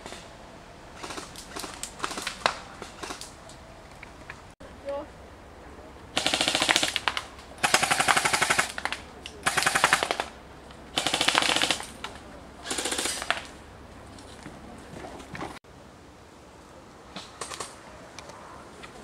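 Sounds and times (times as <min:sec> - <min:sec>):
airsoft rifle bursts of clicks: 0:06.2 - 0:13.6.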